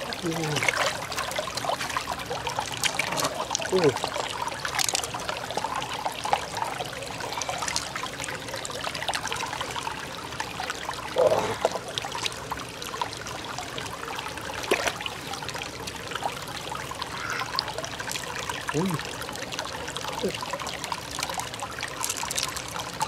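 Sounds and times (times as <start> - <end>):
water trickling: 0.0 - 23.0
shells clicking on wet stone: 4.7 - 5.2, 22.0 - 22.9.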